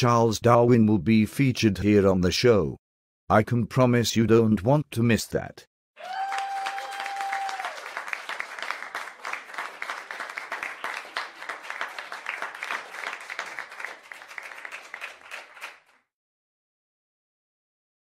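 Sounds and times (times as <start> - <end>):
audience applause: 6.0 - 16.0.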